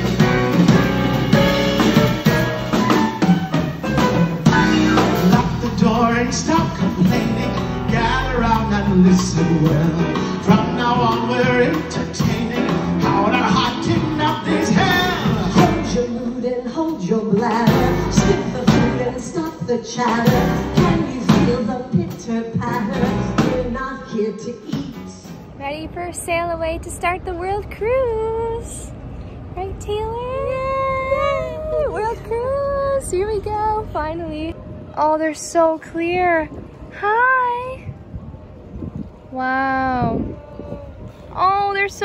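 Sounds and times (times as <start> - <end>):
piano: 0.0 - 25.6
drums: 0.0 - 29.1
bass: 0.0 - 42.0
man singing: 4.4 - 23.8
woman singing: 15.0 - 25.2.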